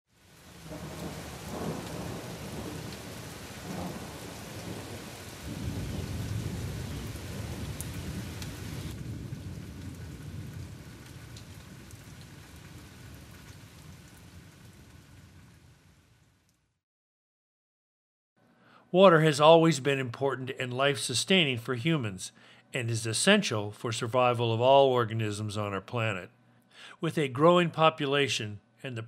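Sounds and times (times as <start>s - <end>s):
heavy rain on foliage: 0.1s - 16.7s
low thunder rumbling: 0.5s - 15.3s.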